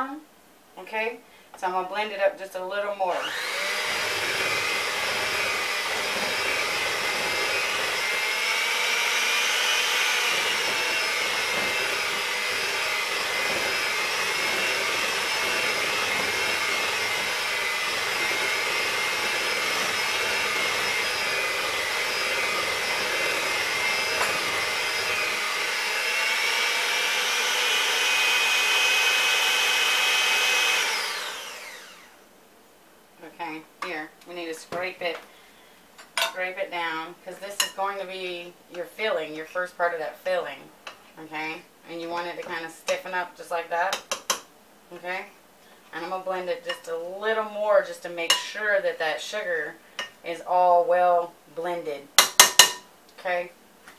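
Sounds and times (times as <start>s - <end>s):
electric hand mixer whine: 3.1s - 32.2s.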